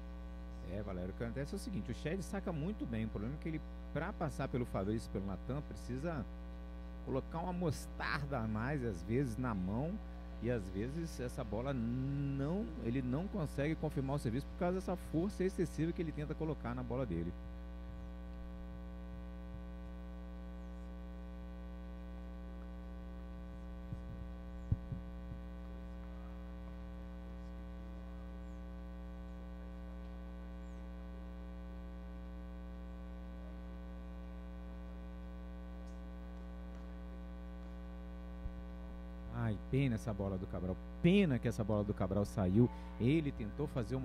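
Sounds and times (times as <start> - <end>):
steady electrical hum: 0.0 - 44.0.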